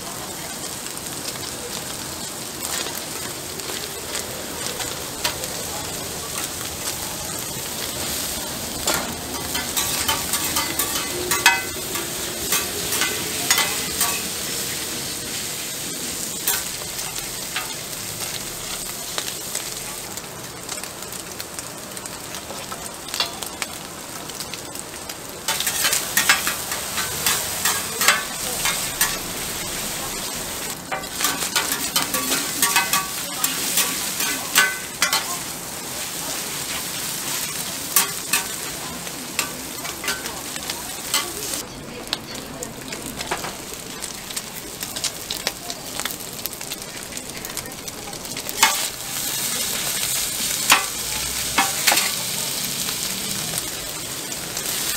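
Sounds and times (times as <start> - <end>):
meat sizzling on a griddle: 0.0 - 54.9
metal spatulas scraping and clacking: 8.8 - 14.3, 25.5 - 29.2, 30.9 - 35.4, 37.9 - 38.6, 48.6 - 48.9, 50.7 - 52.2.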